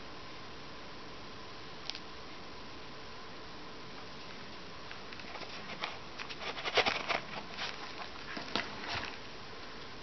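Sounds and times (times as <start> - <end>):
cardboard box handled: 5.2 - 9.2.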